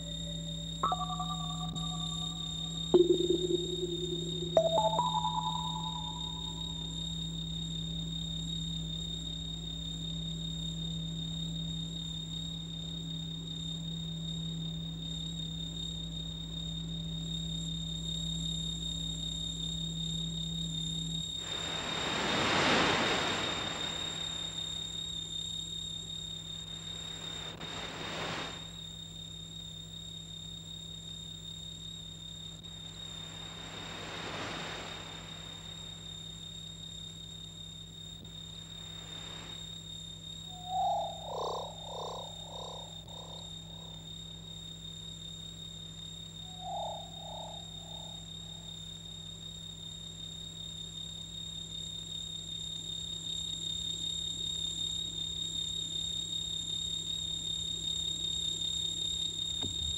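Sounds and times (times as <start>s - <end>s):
echoing mid-pitched tone: 0.0s - 6.7s
electrical hum: 0.0s - 12.7s
faint high whine: 0.0s - 59.9s.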